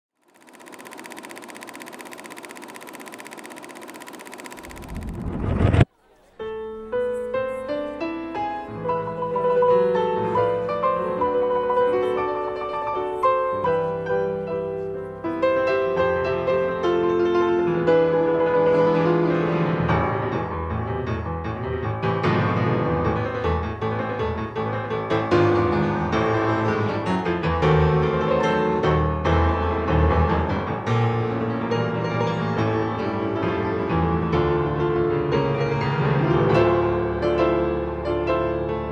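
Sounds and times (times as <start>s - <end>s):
piano music: 6.5s - 15.2s.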